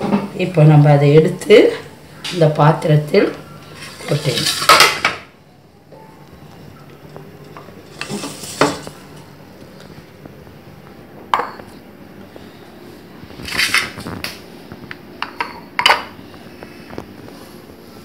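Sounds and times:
metal cooking vessels clanking: 3.6 - 5.3, 7.4 - 9.3.

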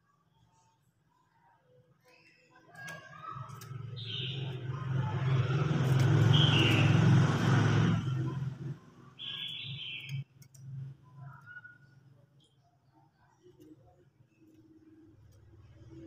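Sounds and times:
passing vehicle engine hum: 3.7 - 9.3.

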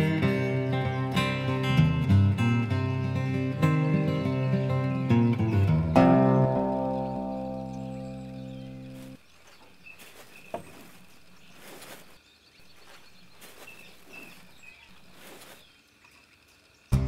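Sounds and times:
rustling and handling noises: 8.9 - 15.7.

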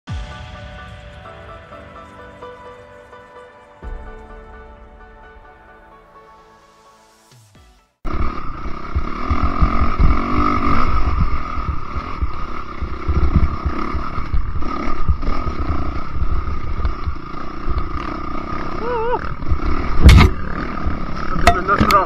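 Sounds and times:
dirt bike engine revving: 8.1 - 22.0
irregular low thumps: 8.5 - 18.0.

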